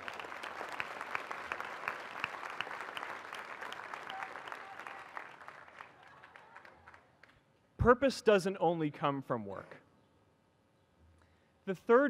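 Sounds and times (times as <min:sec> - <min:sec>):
large crowd applauding: 0:00.0 - 0:07.4.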